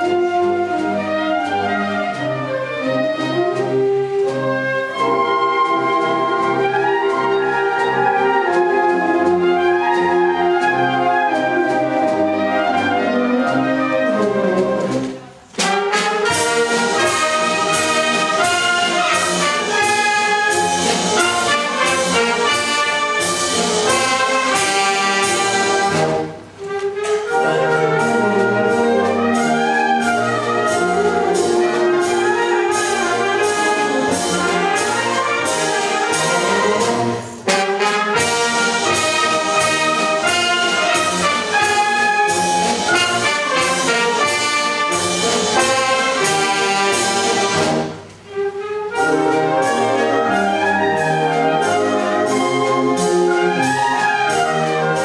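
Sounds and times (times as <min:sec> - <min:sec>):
wind band playing: 0:00.0 - 0:55.0.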